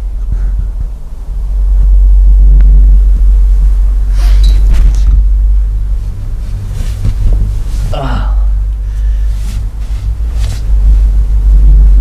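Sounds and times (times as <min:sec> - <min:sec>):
microphone handling rumble: 0:00.0 - 0:12.0
rustling scrapes: 0:05.9 - 0:08.2, 0:08.9 - 0:11.6.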